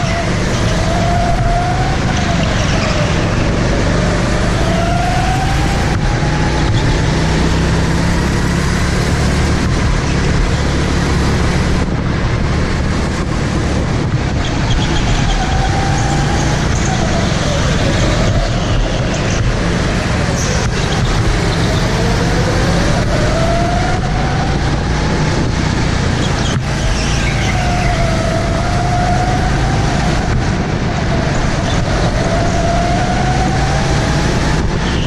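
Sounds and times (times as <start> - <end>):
go-kart motor revving: 0.0 - 11.9
steady rushing noise: 0.0 - 35.0.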